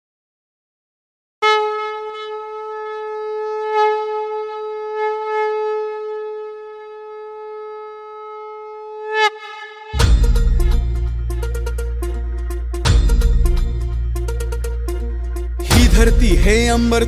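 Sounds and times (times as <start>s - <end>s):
conch shell blown: 1.4s - 12.8s.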